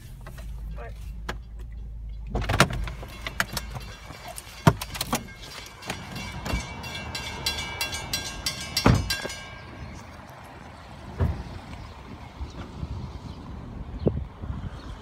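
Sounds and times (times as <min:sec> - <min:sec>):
crossing warning bell ringing: 0:02.8 - 0:10.6.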